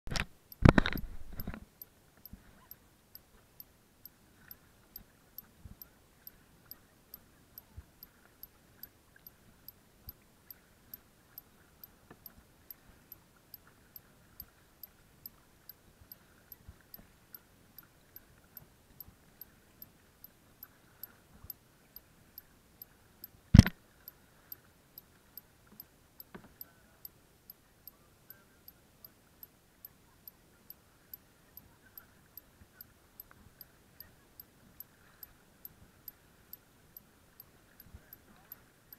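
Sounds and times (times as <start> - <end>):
faint even ticking: 0.1 - 23.8.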